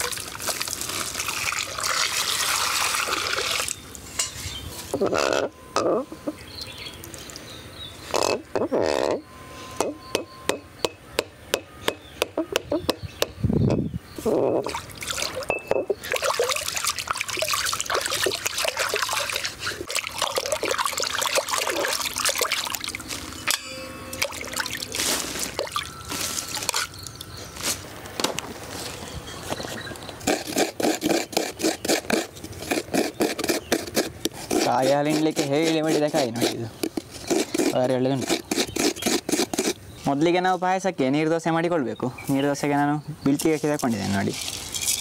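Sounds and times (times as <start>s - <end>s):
water sloshing and splashing: 0.0s - 4.2s, 14.6s - 27.7s
coconut scraping: 2.2s - 6.4s, 8.1s - 10.6s, 30.2s - 40.2s.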